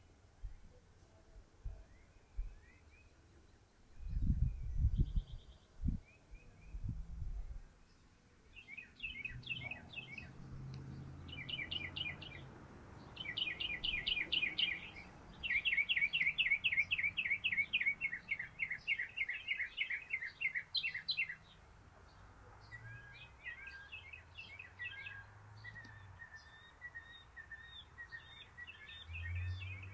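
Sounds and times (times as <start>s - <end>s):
mockingbird singing: 7.6s - 29.9s.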